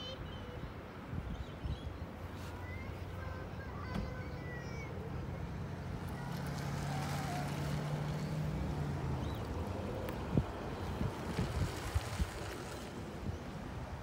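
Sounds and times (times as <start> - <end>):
engine running: 4.8 - 13.3.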